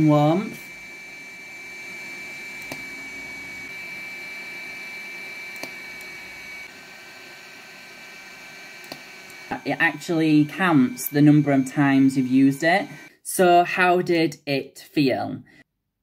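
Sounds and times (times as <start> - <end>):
handset fan noise: 0.0 - 13.1.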